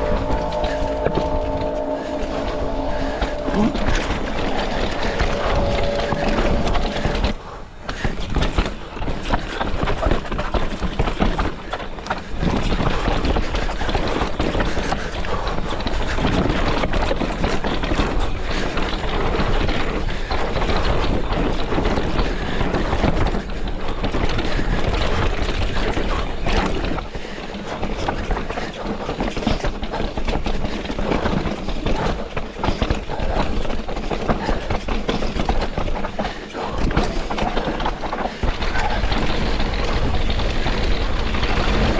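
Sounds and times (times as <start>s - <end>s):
wind rushing over microphone: 0.0s - 9.3s
bike rattling and clacking: 3.0s - 41.9s.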